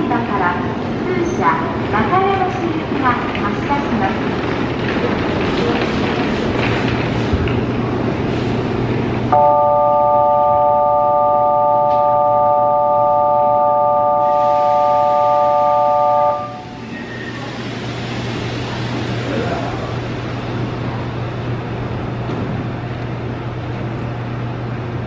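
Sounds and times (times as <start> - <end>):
electronic departure signal chord: 9.3 - 16.6.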